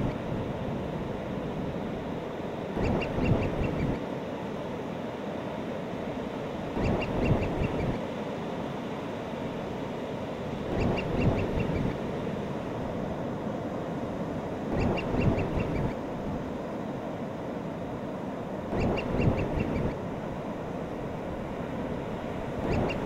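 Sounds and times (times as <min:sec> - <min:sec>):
seabirds calling: 0:02.8 - 0:04.0, 0:06.8 - 0:08.0, 0:10.7 - 0:12.0, 0:14.7 - 0:16.0, 0:18.7 - 0:20.0, 0:22.5 - 0:23.0.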